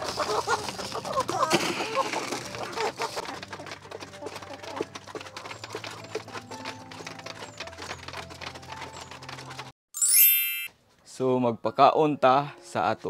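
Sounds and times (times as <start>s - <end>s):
hens clucking: 0.0s - 9.6s
beaks pecking plastic trough: 0.0s - 9.7s
light chiming tones: 10.0s - 10.7s.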